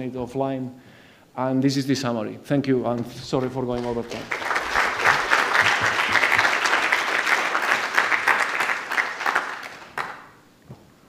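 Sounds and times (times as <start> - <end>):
audience applauding: 3.4 - 10.4.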